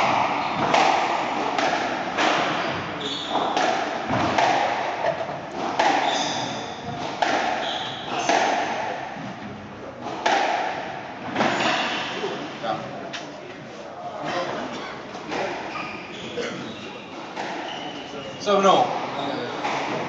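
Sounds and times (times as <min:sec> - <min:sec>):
squash ball knocks echoing: 0:00.0 - 0:12.2
shoes squeaking on wooden floor: 0:02.6 - 0:03.6, 0:05.6 - 0:08.4, 0:15.2 - 0:20.0.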